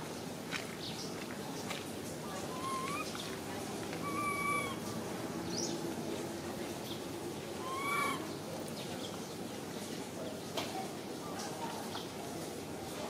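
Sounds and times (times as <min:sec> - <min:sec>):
steady background noise: 0:00.0 - 0:13.0
macaque coo calls: 0:02.4 - 0:03.3, 0:04.0 - 0:04.9, 0:07.5 - 0:08.3.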